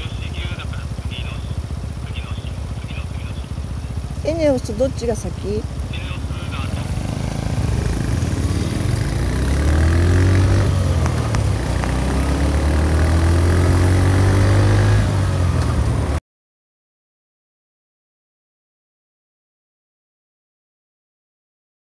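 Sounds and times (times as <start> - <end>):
motorcycle engine revving: 0.0 - 16.2.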